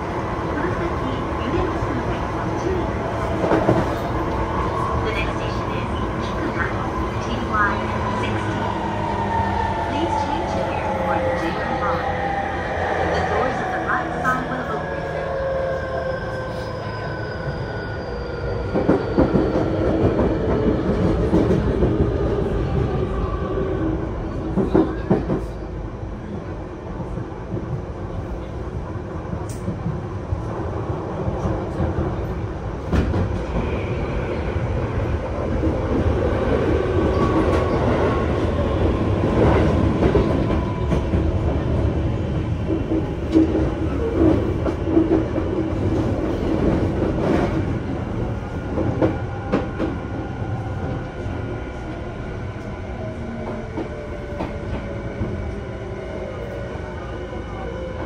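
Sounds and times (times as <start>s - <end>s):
train wheels rumbling on rail: 0.0s - 15.9s, 18.2s - 58.0s.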